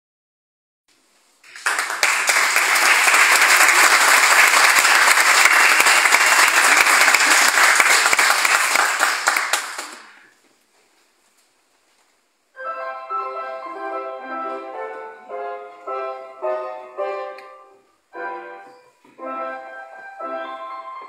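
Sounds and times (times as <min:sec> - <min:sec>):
audience applauding: 0:01.4 - 0:10.3.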